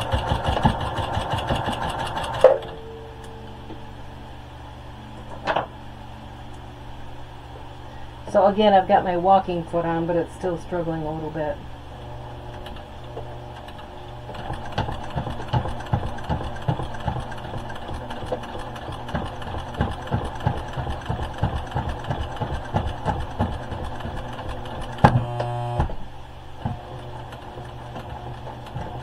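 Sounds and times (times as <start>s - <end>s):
sewing machine stitching: 0.0s - 2.5s, 12.5s - 25.9s, 26.6s - 29.0s
brief buzzing tone: 25.1s - 26.0s.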